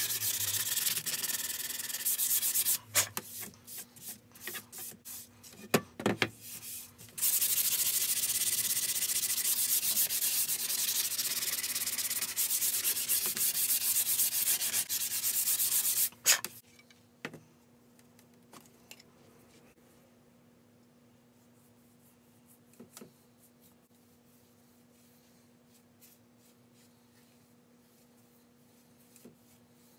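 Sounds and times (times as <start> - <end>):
wood being sanded by hand: 0.0 - 2.8, 7.2 - 16.1.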